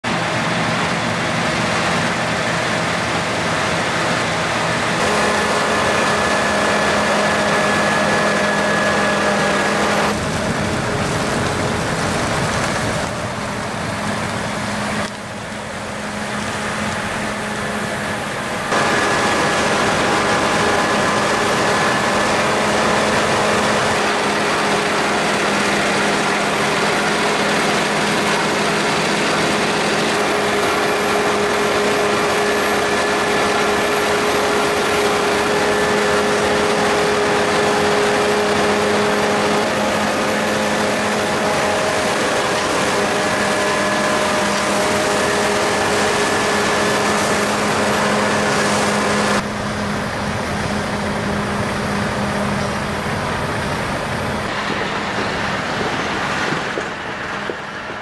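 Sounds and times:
combine harvester engine drone: 0.0s - 58.0s
machinery whine: 0.0s - 58.0s.

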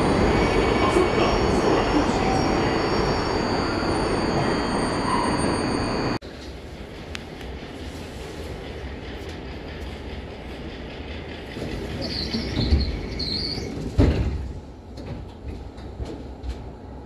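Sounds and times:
high metallic squeals: 0.0s - 6.2s
tram rumbling: 0.0s - 17.0s.

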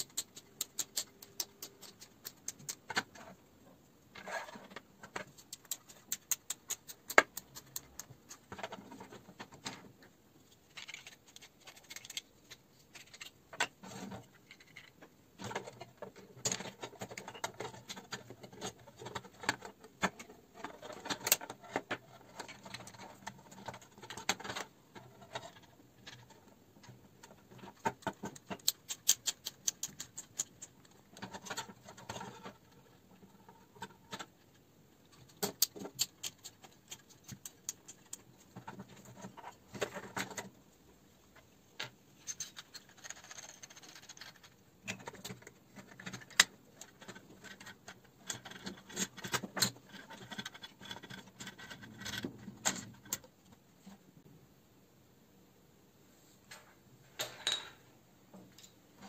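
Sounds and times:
plastic parts clicking together: 0.0s - 3.4s, 10.6s - 40.5s, 41.8s - 53.4s.

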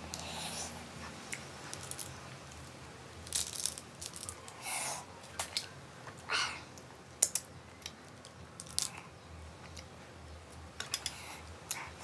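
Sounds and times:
sharp clicks and crunches: 1.3s - 4.6s, 5.3s - 9.1s.

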